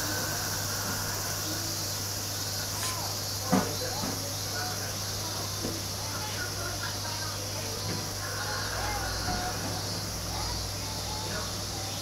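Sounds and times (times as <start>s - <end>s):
insect chirring: 0.0s - 5.4s.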